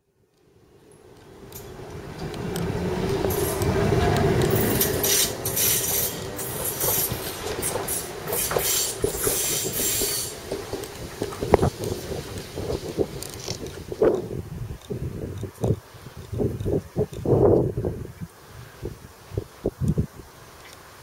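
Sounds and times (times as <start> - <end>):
wheels rumbling on rails: 0.2 - 18.2
tram motor hum: 0.6 - 14.6.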